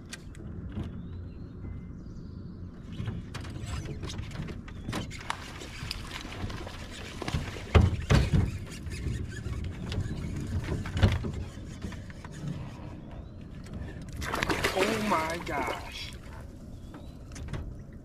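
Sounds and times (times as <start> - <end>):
loud knocks on boat: 7.7 - 8.6.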